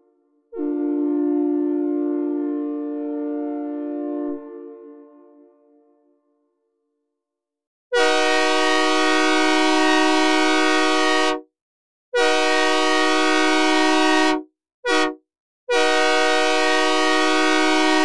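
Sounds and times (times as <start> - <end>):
locomotive air horn chord: 0.6 - 5.6, 7.9 - 11.4, 12.2 - 18.0.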